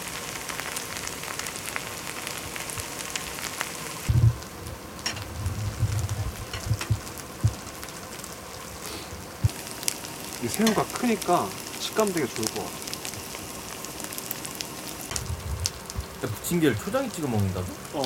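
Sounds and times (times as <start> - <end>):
pancake sizzling in oil: 0.0 - 18.0
low thumps and sharp knocks: 4.1 - 7.8, 15.1 - 16.2.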